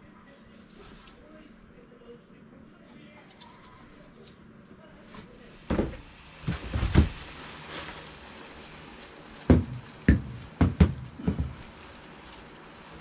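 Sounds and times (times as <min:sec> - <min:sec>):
knocks and clunks: 0:09.5 - 0:11.6.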